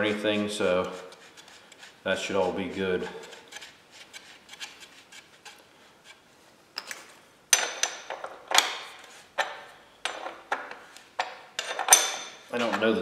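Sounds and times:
metal tools clinking: 6.8 - 13.0
wrench clanking and rattling: 6.8 - 13.0.

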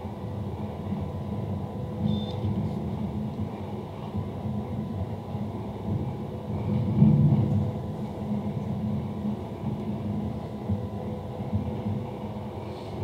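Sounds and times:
high beep: 2.1 - 2.4.

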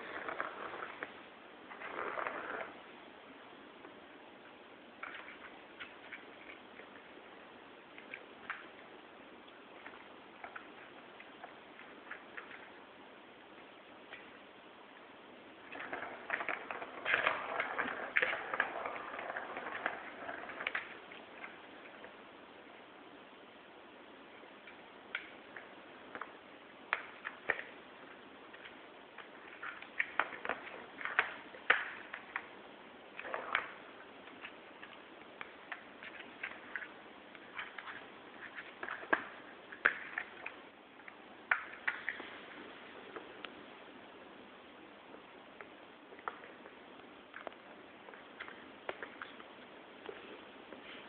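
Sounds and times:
scratchy rustling: 0.0 - 2.9.

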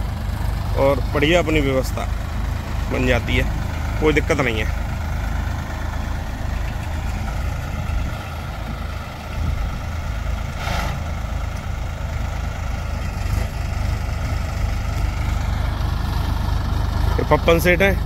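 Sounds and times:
tractor diesel engine running: 0.0 - 18.0
brief hiss: 10.6 - 11.1.

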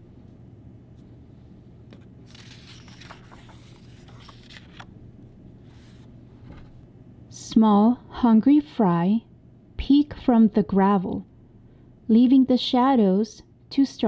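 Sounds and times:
low steady hum: 0.0 - 14.0
paper page turning: 1.9 - 5.0
hand smoothing paper page: 2.3 - 4.9.

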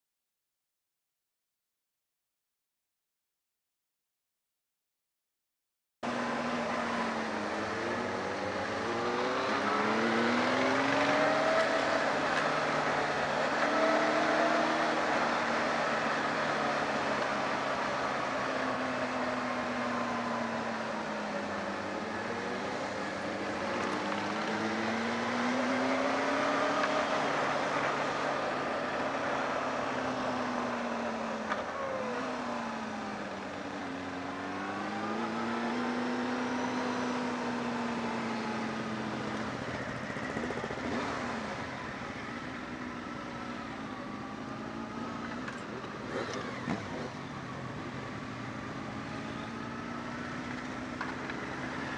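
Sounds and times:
motorcycle engine under way: 6.0 - 51.9.

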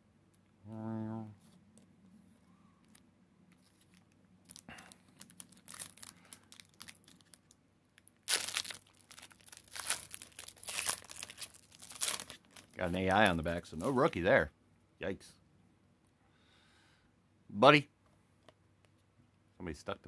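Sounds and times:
foil wrapper crinkling: 2.8 - 14.1
foil tearing and crackling: 8.2 - 13.9.

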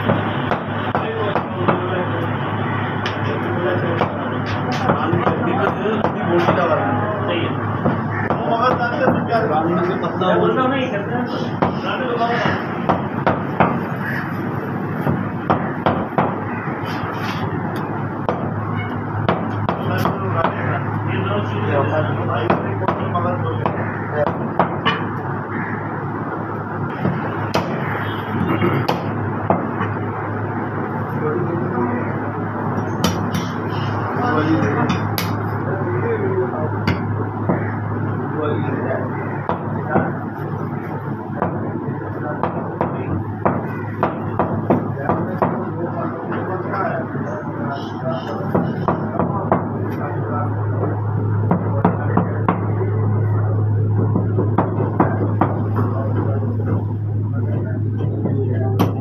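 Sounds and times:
steady background noise: 0.0 - 59.0
low hum: 49.3 - 59.0.

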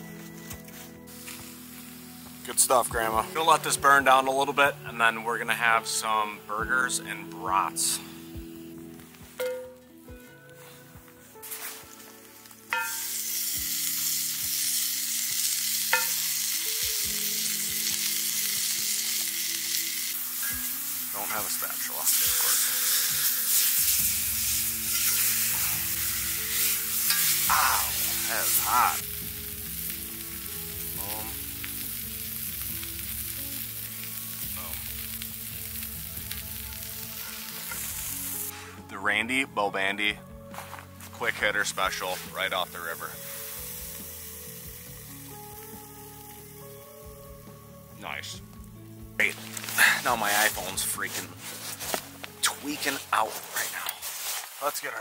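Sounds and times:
patties sizzling in a skillet: 1.1 - 3.4, 12.5 - 38.6, 41.9 - 47.9.

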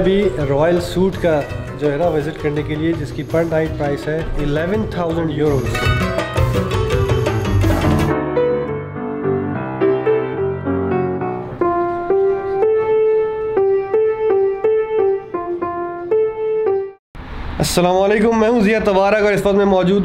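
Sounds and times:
background music: 0.0 - 17.0
solo piano notes: 8.0 - 17.0.

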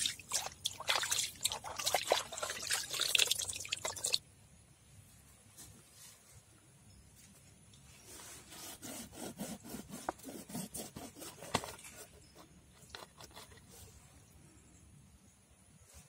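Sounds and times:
knife sawing through fish: 8.4 - 11.4.

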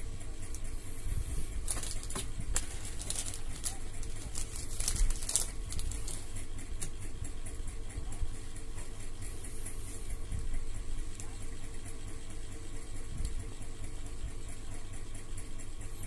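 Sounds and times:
steady low hum: 0.0 - 16.0
plastic bags crinkling: 1.5 - 6.4.

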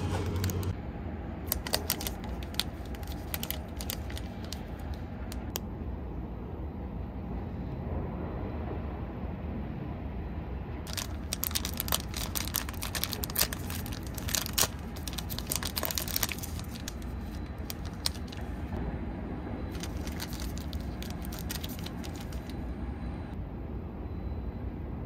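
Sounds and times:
plastic packaging crinkling: 0.0 - 0.7, 1.5 - 5.6, 10.9 - 18.7, 19.7 - 22.6
low background hum: 0.0 - 25.0.

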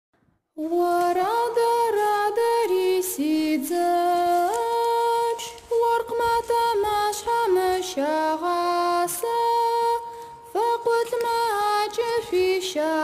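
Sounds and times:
person singing unaccompanied: 0.6 - 13.0.

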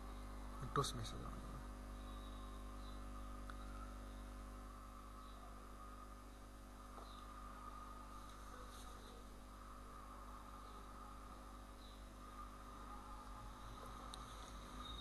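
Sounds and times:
low electrical hum: 0.0 - 15.0
faint clicks: 3.4 - 3.7.

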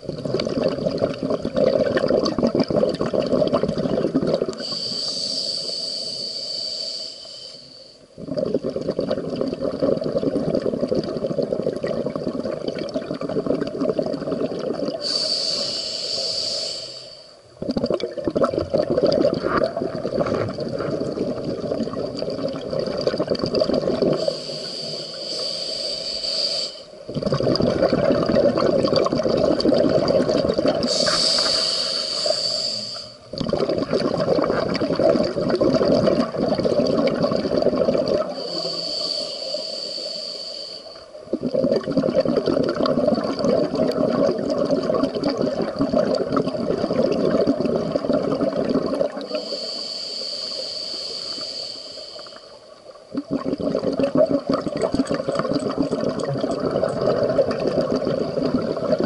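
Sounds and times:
bubbling exhalation: 0.0 - 4.8, 8.2 - 15.3, 17.6 - 24.6, 27.1 - 38.9, 41.2 - 49.6, 53.1 - 59.0
regulator hissing inhalations: 4.6 - 8.0, 15.0 - 17.4, 24.1 - 27.0, 30.8 - 33.3, 38.2 - 41.2, 49.2 - 52.8.

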